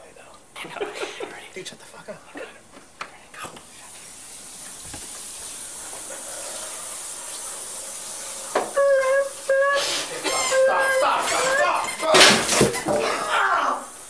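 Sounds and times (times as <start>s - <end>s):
shower water spraying: 3.6s - 14.0s
high-pitched scream: 8.6s - 14.0s.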